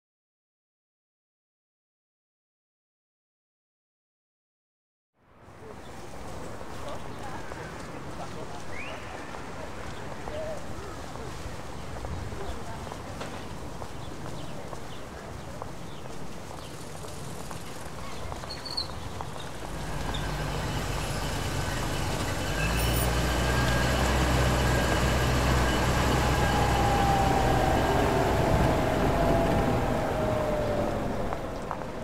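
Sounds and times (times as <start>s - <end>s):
street hubbub: 5.4s - 32.0s
car passing by: 19.4s - 32.0s.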